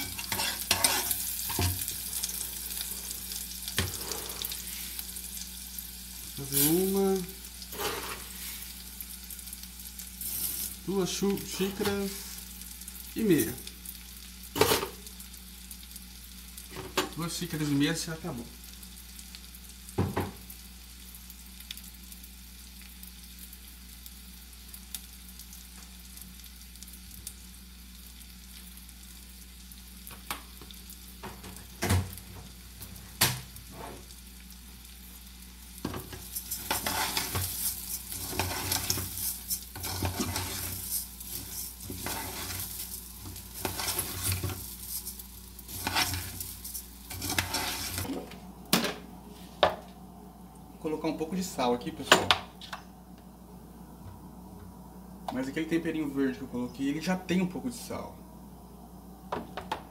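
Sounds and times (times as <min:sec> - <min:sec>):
spoon stirring and scraping pot: 0:00.0 - 0:01.9, 0:07.7 - 0:08.6, 0:36.1 - 0:48.2
rice sizzling in oil: 0:00.0 - 0:53.5.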